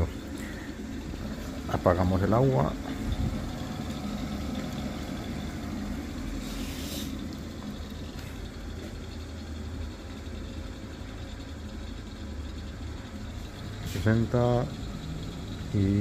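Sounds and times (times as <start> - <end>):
gas burner rumble: 0.0 - 16.0.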